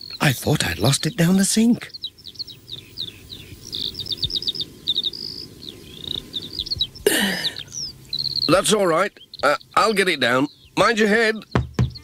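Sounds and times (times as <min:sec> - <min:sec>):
small birds chirping and trilling: 0:00.0 - 0:12.0
short falling bird cry: 0:02.4 - 0:08.5.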